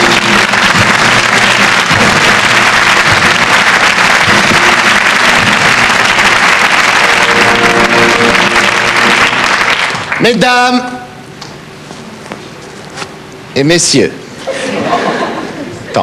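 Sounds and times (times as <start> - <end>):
audience applauding: 0.0 - 10.7.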